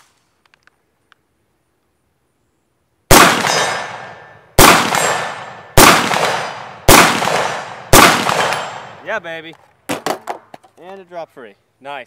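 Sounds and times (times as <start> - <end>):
rifle shots ringing out: 3.1 - 9.1.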